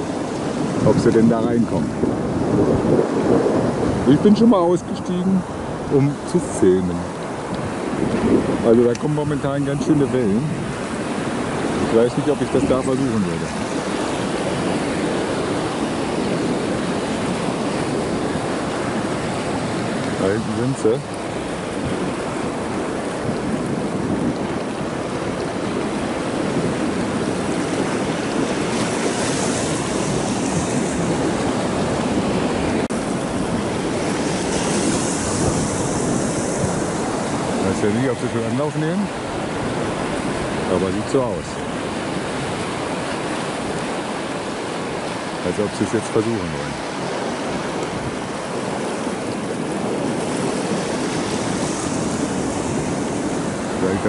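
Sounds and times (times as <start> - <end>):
surf breaking over rocks: 0.0 - 54.0.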